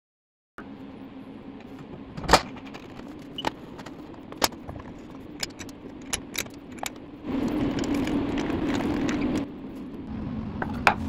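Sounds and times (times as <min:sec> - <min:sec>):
steady low hum: 0:00.6 - 0:11.0
wooden disc clicks and clinks: 0:02.5 - 0:09.5.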